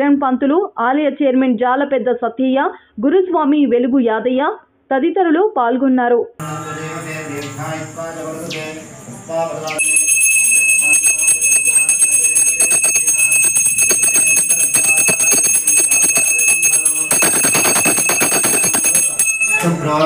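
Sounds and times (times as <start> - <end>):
voices: 6.4 - 20.0
hand bell ringing rapidly: 9.8 - 20.0.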